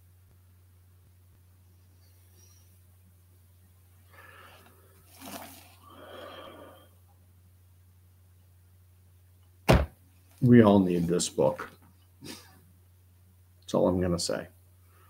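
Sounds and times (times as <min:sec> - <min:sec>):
low steady hum: 0:00.0 - 0:15.0
man breathing softly: 0:04.0 - 0:05.1, 0:05.7 - 0:07.0.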